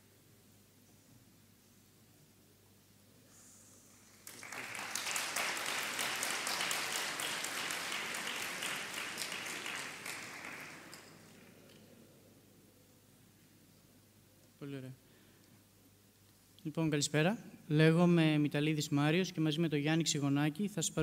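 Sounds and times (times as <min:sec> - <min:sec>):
audience applauding: 0:04.1 - 0:11.6.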